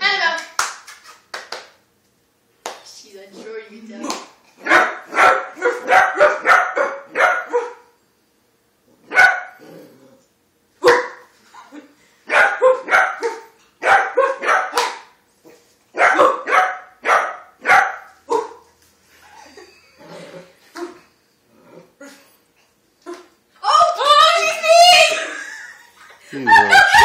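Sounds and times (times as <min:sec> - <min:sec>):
puppy barking: 0:04.6 - 0:08.0, 0:09.1 - 0:09.6, 0:10.8 - 0:11.3, 0:12.3 - 0:15.1, 0:15.9 - 0:18.6.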